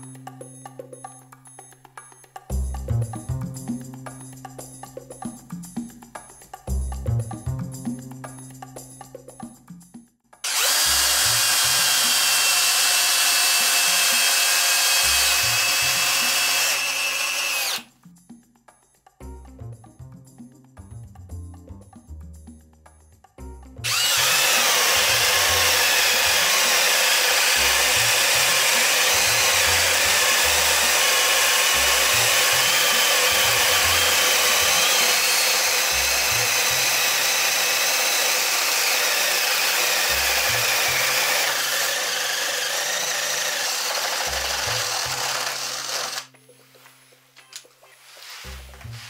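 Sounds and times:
cordless drills boring wood: 10.4s - 17.9s, 23.8s - 46.3s.

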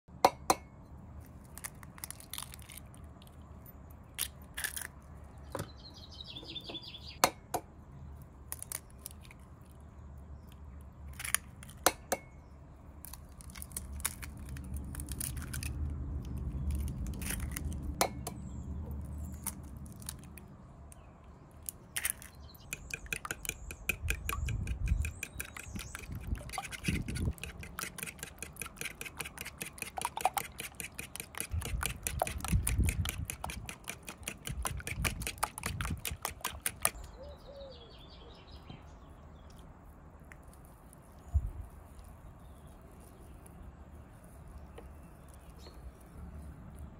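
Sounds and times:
eggs cracking on wooden bowl: 21.6s - 37.1s
fork beating eggs in bowl: 22.0s - 37.0s.

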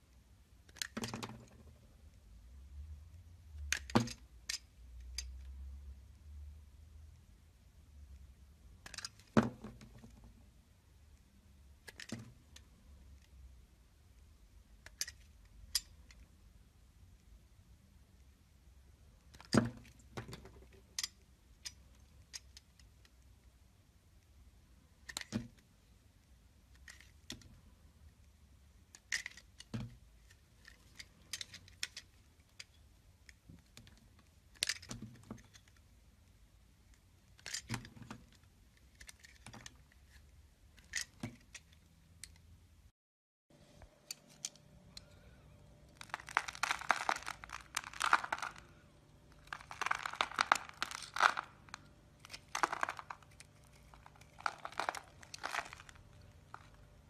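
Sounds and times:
soap cracking and snapping: 45.9s - 48.7s, 49.3s - 56.8s
blade scraping soap shavings: 49.4s - 56.8s.

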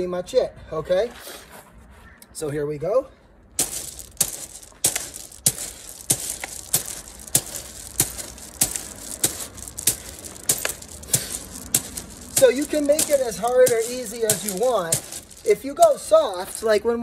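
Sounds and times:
stones crunching and clattering: 3.6s - 16.8s.

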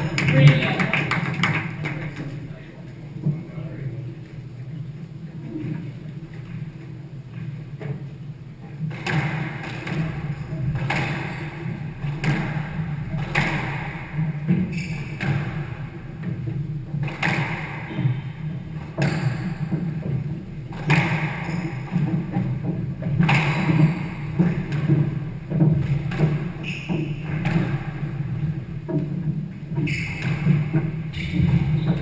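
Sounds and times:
steady low hum: 0.0s - 32.0s
squash racket hitting ball: 8.8s - 32.0s.

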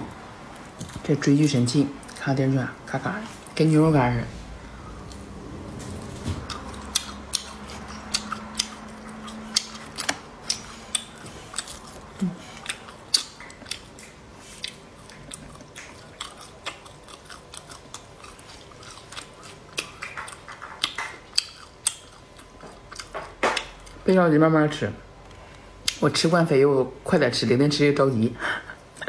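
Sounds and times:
crunching dry meat and bones: 5.9s - 24.1s.

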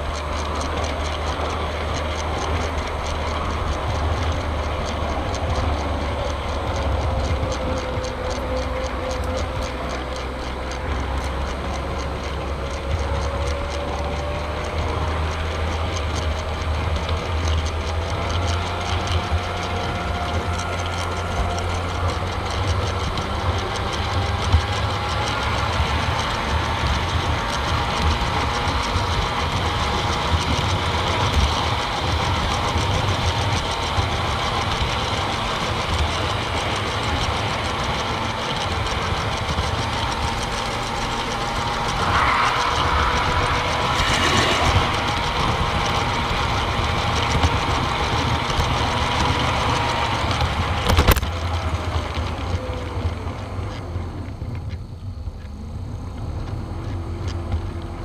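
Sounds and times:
model train running on track: 0.0s - 58.0s
thin wavering whine: 39.0s - 48.0s
rush of noise: 39.9s - 48.9s.

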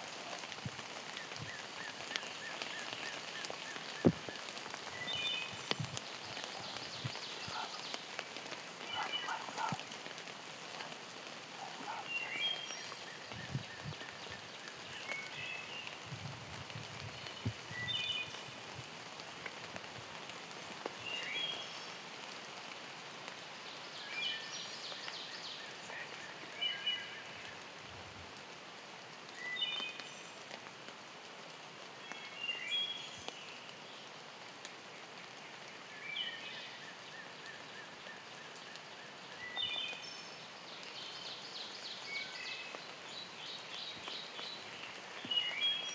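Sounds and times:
rain hissing: 0.0s - 45.9s
songbird chirping: 0.4s - 16.1s, 35.0s - 45.9s.

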